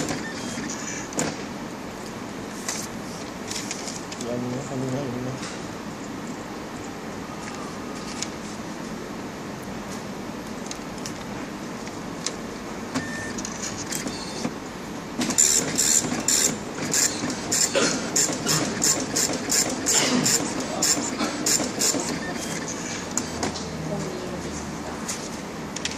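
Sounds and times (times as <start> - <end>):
dot-matrix printer printing: 0.0 - 1.5, 12.9 - 14.6, 15.2 - 23.7.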